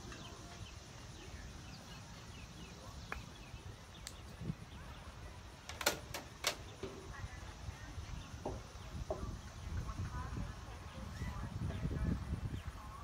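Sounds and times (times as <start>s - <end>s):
wind on microphone: 2.8s - 5.6s, 6.6s - 13.0s.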